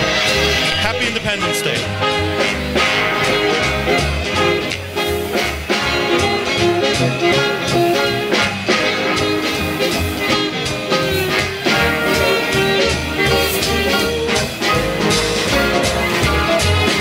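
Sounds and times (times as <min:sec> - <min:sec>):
swing band music: 0:00.0 - 0:17.0.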